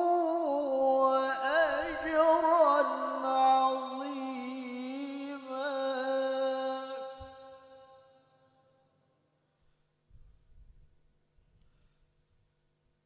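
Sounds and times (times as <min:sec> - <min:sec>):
man chanting in high voice: 0:00.0 - 0:08.2.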